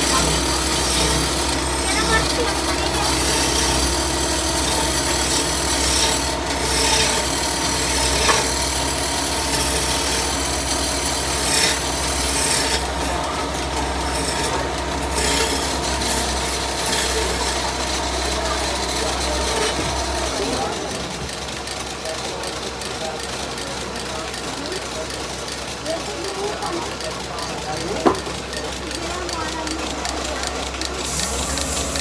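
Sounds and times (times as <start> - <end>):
lathe motor hum: 0.0 - 32.0
chisel scraping wood: 4.6 - 17.8.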